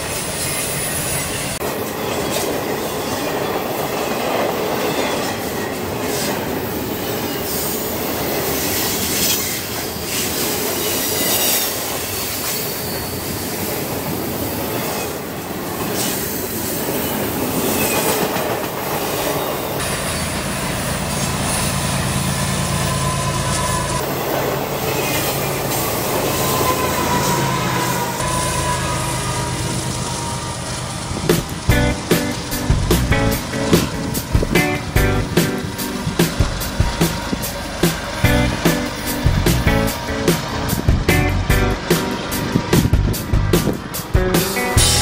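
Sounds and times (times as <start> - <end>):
train wheels rumbling on rail: 0.0 - 45.0
high-pitched wheel squeals: 8.6 - 13.5, 21.2 - 24.1, 24.8 - 30.8
diesel locomotive drone: 16.4 - 45.0.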